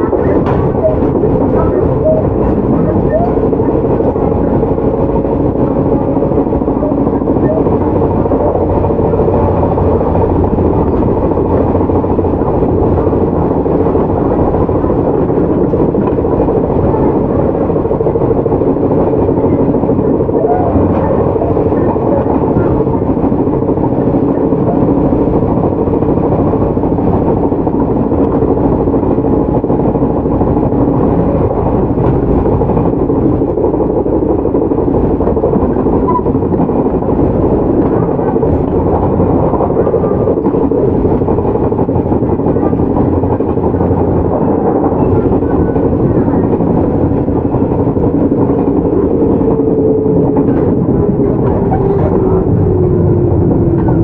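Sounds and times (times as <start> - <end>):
electric train running rumble: 0.0 - 54.0.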